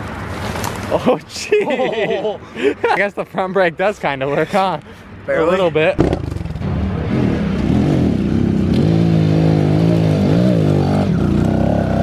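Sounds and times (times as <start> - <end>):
dirt bike engine bogging uphill: 6.0 - 6.6.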